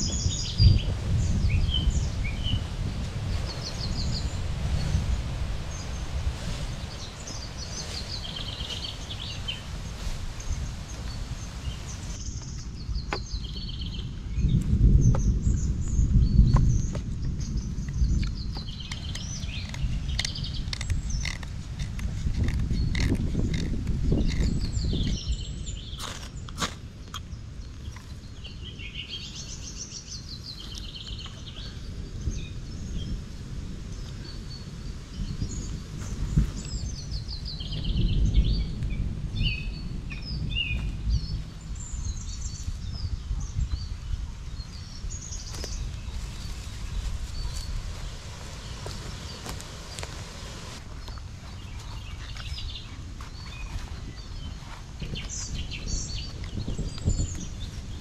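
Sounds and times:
songbirds chirping and trilling: 0:00.0 - 0:58.0
footsteps rustling dry leaves: 0:02.6 - 0:12.4, 0:45.3 - 0:55.5.

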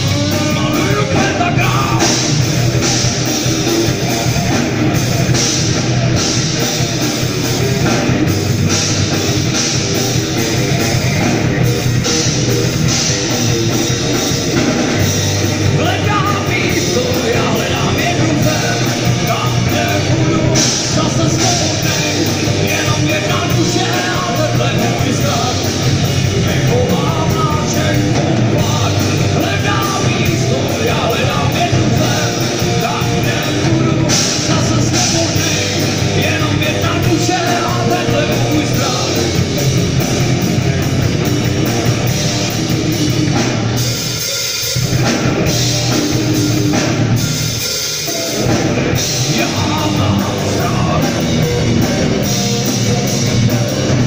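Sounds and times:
man singing: 0:00.0 - 0:04.6, 0:15.5 - 0:40.9, 0:48.3 - 0:54.0
live rock band playing: 0:00.0 - 0:54.0.

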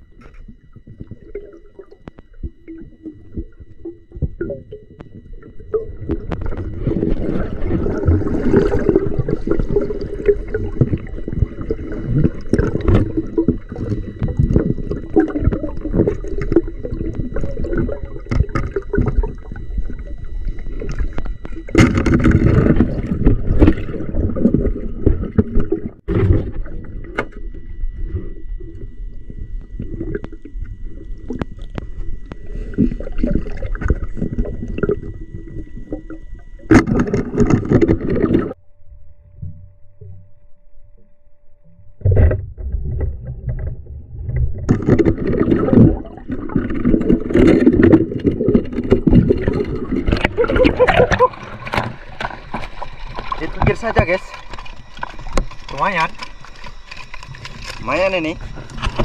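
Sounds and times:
river water sloshing and gurgling: 0:05.9 - 0:29.0, 0:42.6 - 0:59.0.

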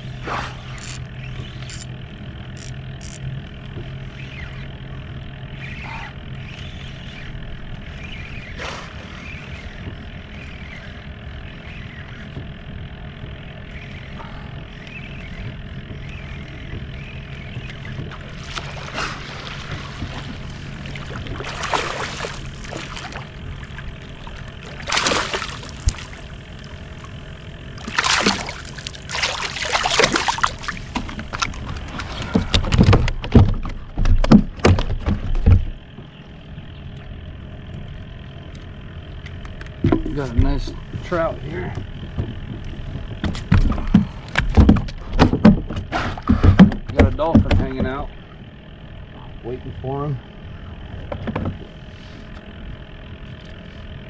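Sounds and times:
water lapping against kayak hull: 0:12.2 - 0:36.0
water splashes: 0:18.1 - 0:26.3, 0:27.8 - 0:32.1.

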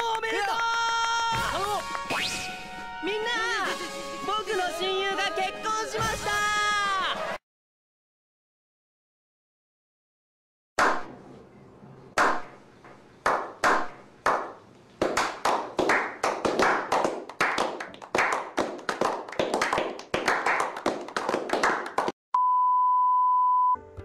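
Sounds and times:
hands clapping into applause: 0:00.0 - 0:02.4, 0:13.3 - 0:22.2.

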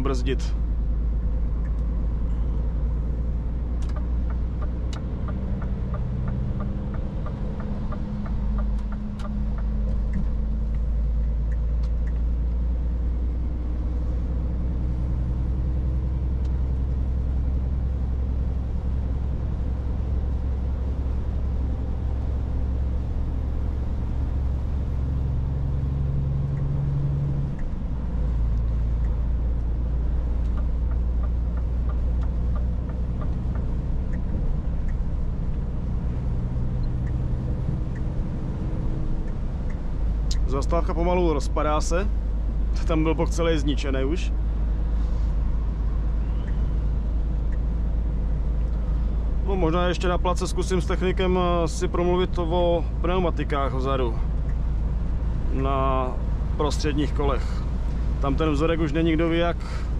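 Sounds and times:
road noise: 0:00.0 - 0:59.9
truck diesel engine droning: 0:00.0 - 0:59.9
light evenly spaced ticks: 0:03.8 - 0:12.6, 0:26.4 - 0:40.5, 0:44.5 - 0:49.4, 0:54.2 - 0:55.4.

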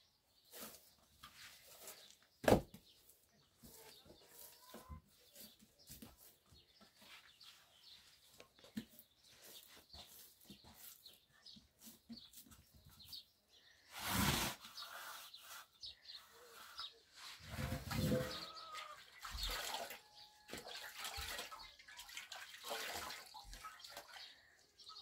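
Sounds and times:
birds chirping: 0:00.0 - 0:22.3, 0:23.3 - 0:25.0
loud rustling scrape: 0:13.8 - 0:18.7.

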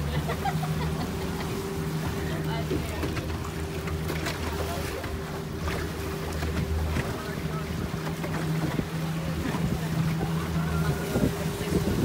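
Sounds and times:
boat engine humming: 0:00.0 - 0:12.0
wind buffeting microphone: 0:05.5 - 0:12.0.

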